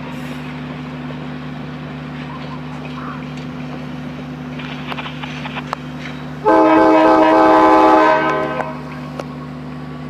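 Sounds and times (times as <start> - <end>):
locomotive air horn chord: 6.4 - 9.0.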